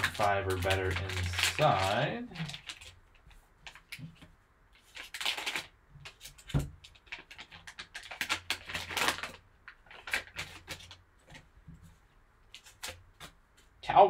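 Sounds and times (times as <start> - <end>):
plastic bag crinkling: 0.0 - 4.2, 4.8 - 11.0.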